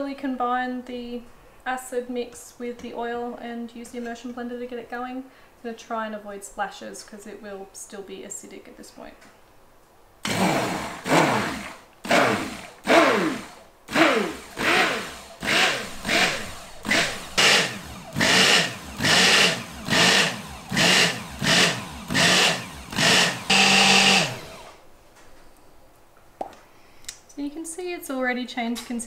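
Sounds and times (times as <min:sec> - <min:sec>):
immersion blender motor whine: 0:10.2 - 0:24.8.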